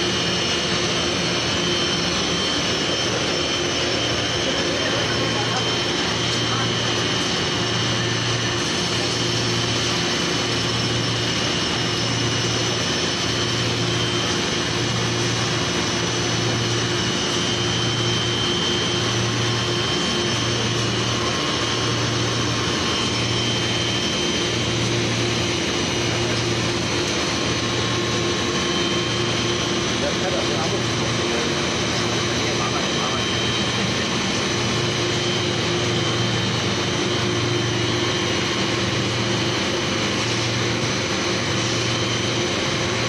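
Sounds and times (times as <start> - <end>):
high machine whine: 0.0 - 43.0
steady machine noise: 0.0 - 43.0.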